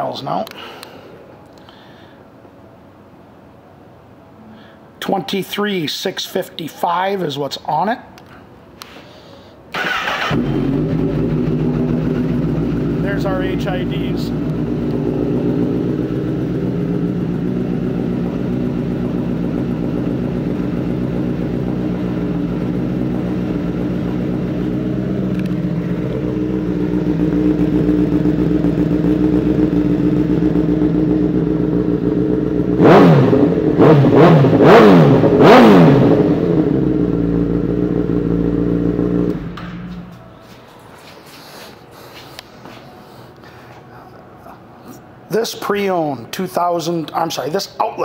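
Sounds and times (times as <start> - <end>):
motorcycle engine idling and revving: 9.8 - 40.2.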